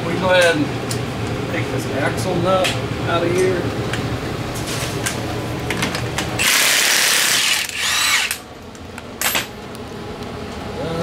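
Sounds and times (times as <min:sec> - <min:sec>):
impact wrench running: 0:06.4 - 0:08.4.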